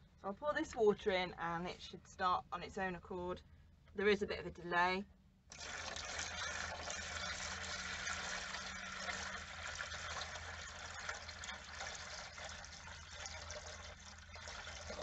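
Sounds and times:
water splashing from bucket: 5.5s - 15.0s.

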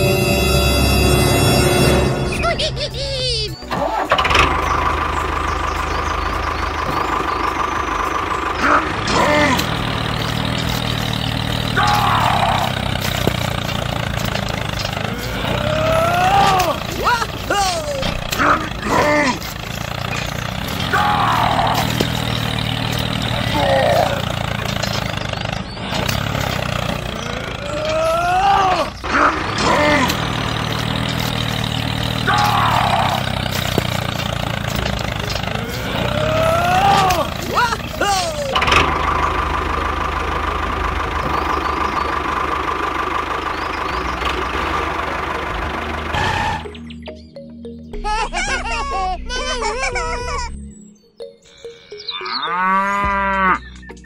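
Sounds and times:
tractor engine running: 0.0s - 54.0s
squeaky cartoon-like voice calls: 2.3s - 4.1s.

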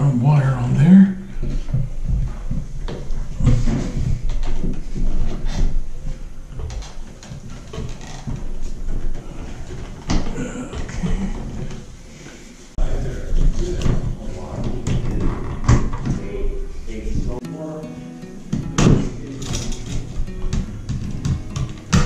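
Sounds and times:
clicks and scrapes of wire and tools: 19.3s - 20.1s.

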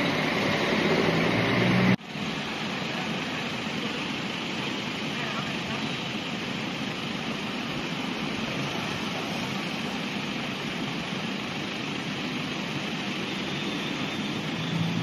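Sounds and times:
traffic driving through floodwater: 0.0s - 15.0s.

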